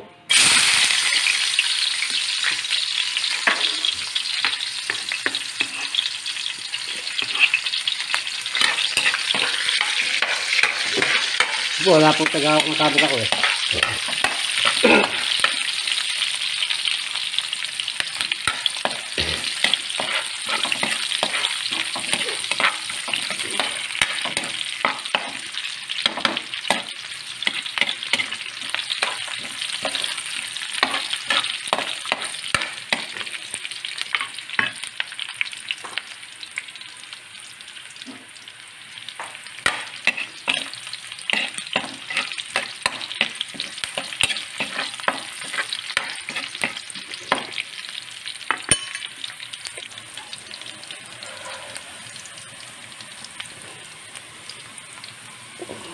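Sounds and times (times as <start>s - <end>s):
onions sizzling in oil: 0.3s - 55.9s
metal spoon scraping a wok: 5.6s - 6.0s, 7.2s - 7.6s, 18.4s - 25.4s, 40.0s - 40.7s, 41.3s - 46.8s.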